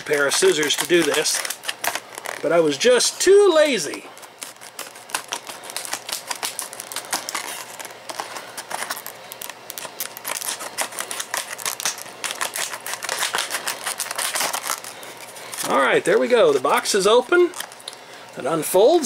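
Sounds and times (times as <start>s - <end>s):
scissors snipping plastic: 0.0s - 2.5s, 3.9s - 14.9s.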